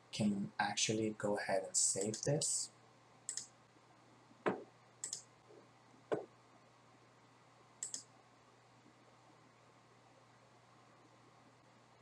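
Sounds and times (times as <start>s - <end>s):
computer mouse clicking: 3.3s - 3.5s, 4.5s - 5.3s, 7.8s - 8.1s.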